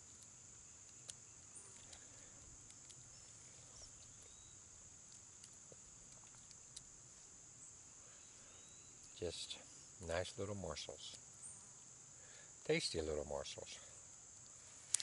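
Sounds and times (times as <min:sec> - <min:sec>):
high-pitched insect chorus: 0:00.0 - 0:15.0.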